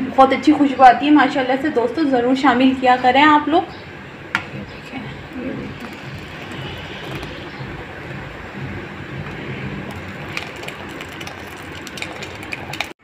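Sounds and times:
ladle stirring: 5.2s - 8.2s, 9.2s - 13.0s
milk simmering in a pan: 5.3s - 7.6s, 9.2s - 13.0s
milk pouring into pan: 5.7s - 7.4s, 9.2s - 13.0s.

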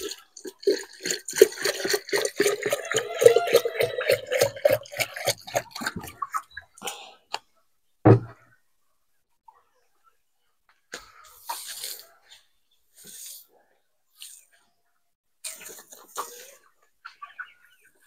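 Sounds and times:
thump: 8.0s - 8.4s.

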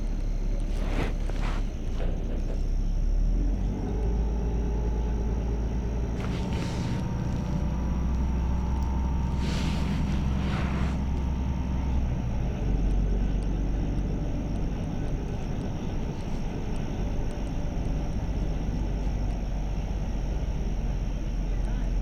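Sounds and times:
bus engine droning: 0.0s - 22.0s
short hissing noises: 0.6s - 2.7s, 6.0s - 11.9s.

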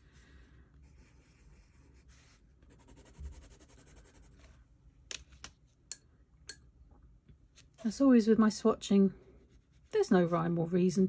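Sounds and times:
pencil hatching strokes: 0.8s - 4.5s
pencil scratching on paper: 0.8s - 4.5s.

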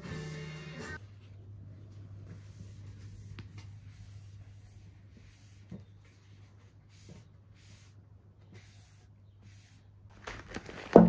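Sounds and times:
steady low hum: 1.0s - 8.2s.

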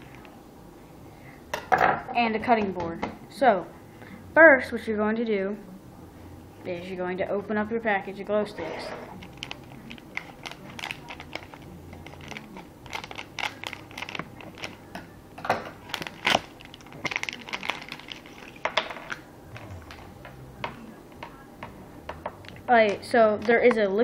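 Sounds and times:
plastic packaging crinkling: 9.1s - 15.0s, 15.8s - 19.2s
plastic cracks: 9.2s - 15.1s, 15.8s - 19.2s.

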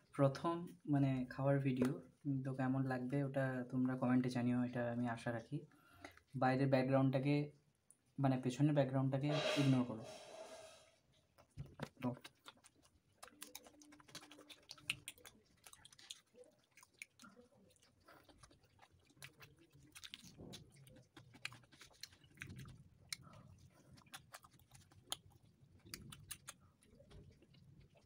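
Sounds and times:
person chewing and eating: 11.3s - 28.0s.

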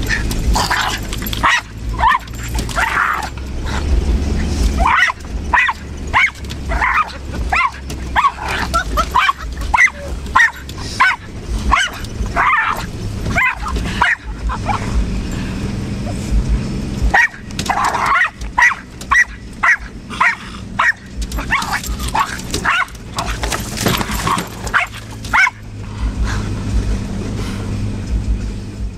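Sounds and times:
car driving hum: 0.0s - 28.9s
dog barking sharply: 0.1s - 3.3s, 4.8s - 14.9s, 17.1s - 25.6s.

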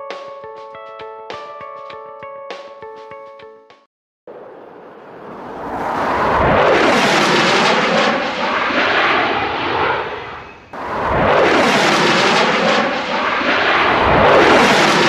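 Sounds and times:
jet fighter roaring past: 4.3s - 15.0s.

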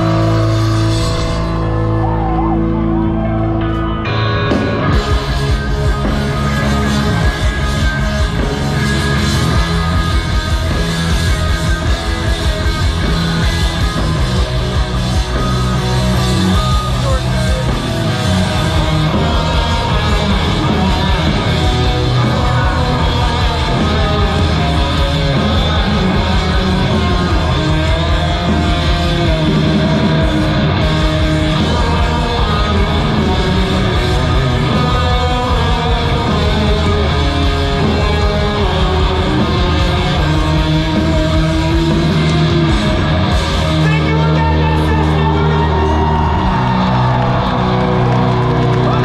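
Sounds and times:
drums: 0.0s - 49.0s
electric guitars: 0.0s - 49.0s
person singing: 16.7s - 42.8s.

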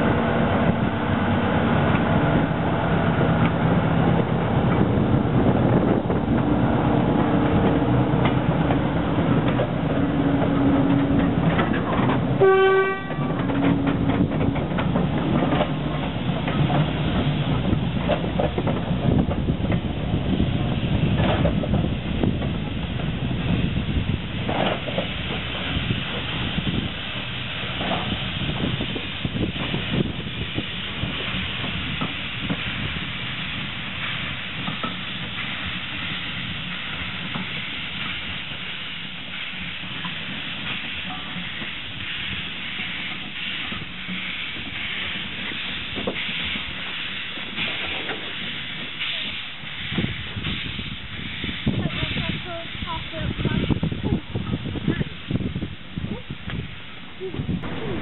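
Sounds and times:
steam hiss: 0.0s - 58.0s
train wheels and couplings clanking: 0.0s - 58.0s
shrill steam whistle: 12.4s - 13.4s.

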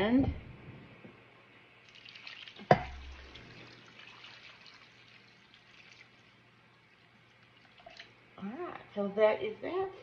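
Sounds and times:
liquid pouring from a glass jar: 7.4s - 8.2s.

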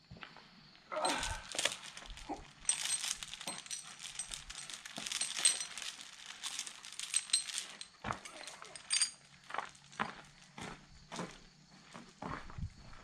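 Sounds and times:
small metal pieces rattling: 1.0s - 10.0s.

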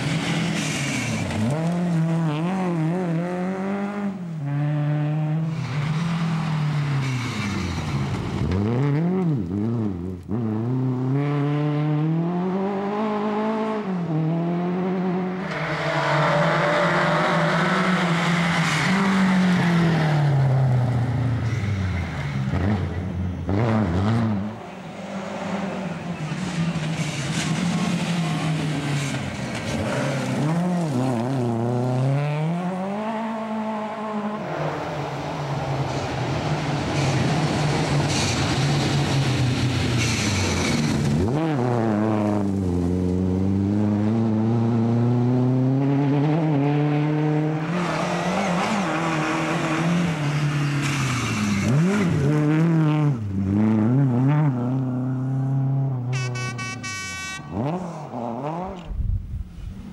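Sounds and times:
gravel and tyres hissing: 0.0s - 1.6s, 35.9s - 41.2s
rally car engine revving: 0.0s - 56.1s, 57.4s - 59.9s.

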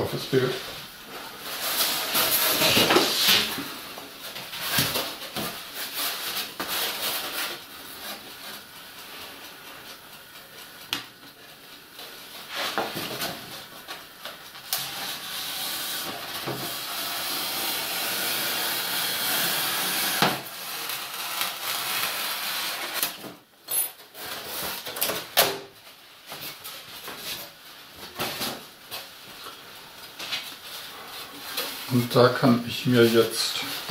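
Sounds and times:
foam sheet sliding hiss: 1.2s - 5.0s, 12.4s - 12.9s, 14.9s - 23.0s
foam board rubbing and scraping: 1.4s - 3.8s, 14.9s - 23.0s.

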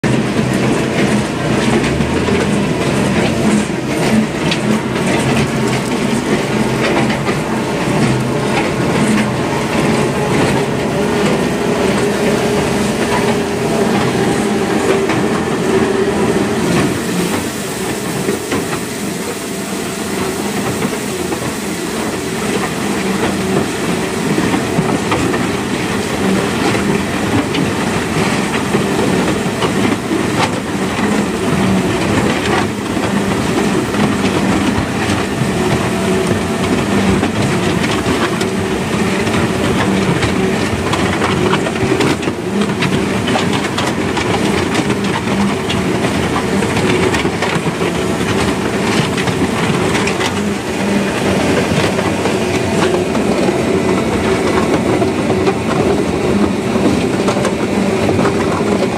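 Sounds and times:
mixer pump humming: 0.0s - 58.9s
gravel rattling into mixing drum: 20.2s - 58.9s.

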